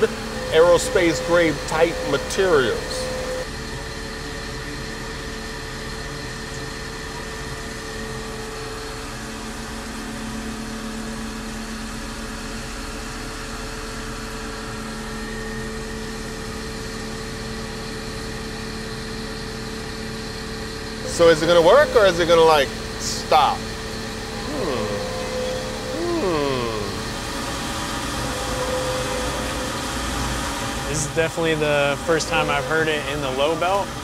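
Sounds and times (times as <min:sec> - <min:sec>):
lower machine tone: 0:00.0 - 0:34.0
milling machine whine: 0:00.0 - 0:34.0.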